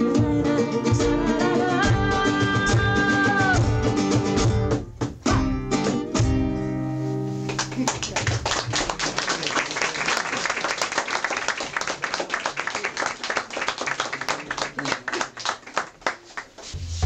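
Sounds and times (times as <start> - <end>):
small group applauding: 7.5 - 16.8.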